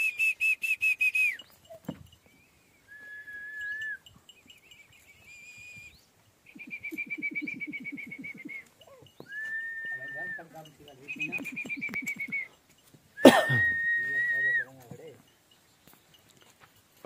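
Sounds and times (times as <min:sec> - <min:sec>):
fast pulsing whistled trill: 0:00.0 - 0:12.6, 0:13.2 - 0:14.8
held whistles: 0:00.0 - 0:12.6, 0:13.2 - 0:14.8.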